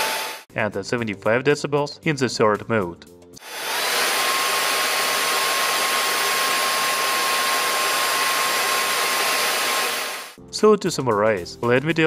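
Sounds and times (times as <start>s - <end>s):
cordless vacuum running: 0.0s - 0.4s, 3.4s - 10.4s.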